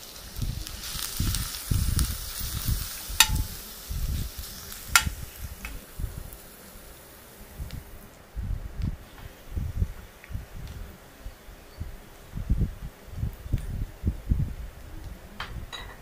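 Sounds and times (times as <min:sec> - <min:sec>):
garlic sizzling in hot oil: 0:00.0 - 0:08.1
metal spoon clinking on pan: 0:03.2 - 0:03.6.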